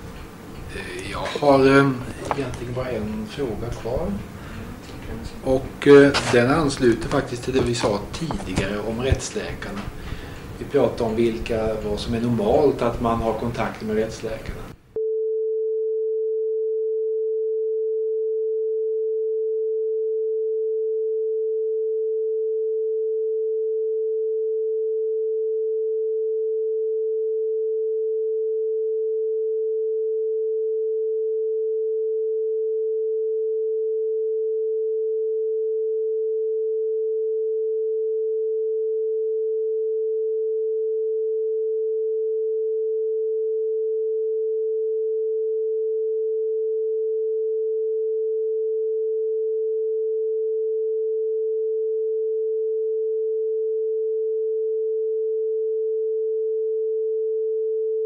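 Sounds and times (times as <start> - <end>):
steady pure tone: 0.0 - 25.0
person speaking: 0.7 - 10.0, 10.6 - 14.8.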